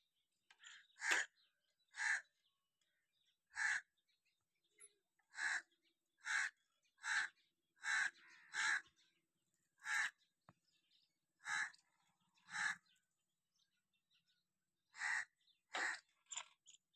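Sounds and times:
crow cawing: 0.7s - 2.3s, 3.5s - 3.9s, 5.3s - 9.0s, 9.8s - 10.2s, 11.4s - 11.8s, 12.4s - 12.9s, 14.9s - 16.1s.

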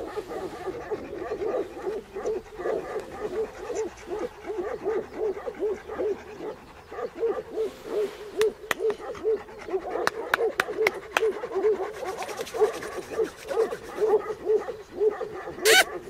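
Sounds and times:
dog whimpering: 15.6s - 16.0s.

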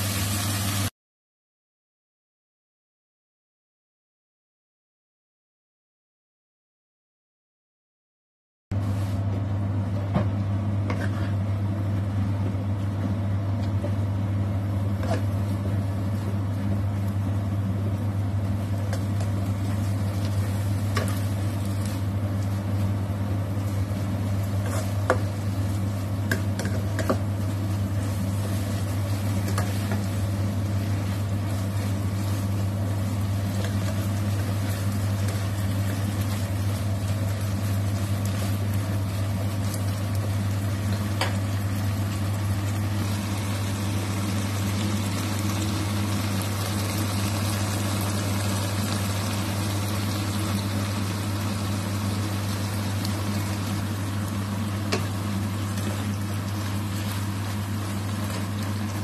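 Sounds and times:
stir-frying in a wok: 0.0s - 0.9s, 10.8s - 59.0s
spatula scraping a pan: 10.9s - 11.4s.

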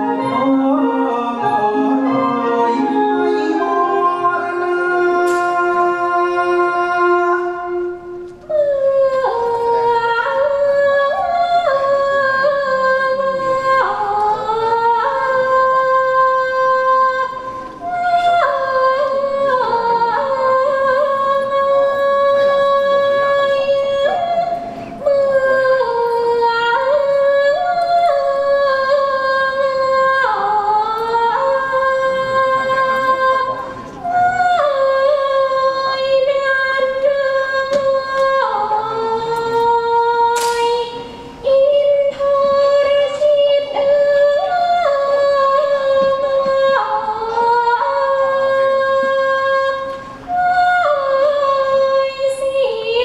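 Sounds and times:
woman singing long held notes: 0.0s - 53.0s.

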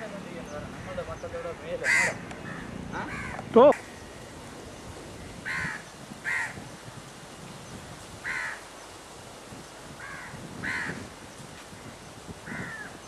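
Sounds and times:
crow cawing: 1.8s - 3.4s, 5.4s - 6.6s, 8.2s - 8.6s, 10.0s - 11.0s, 12.5s - 13.0s.

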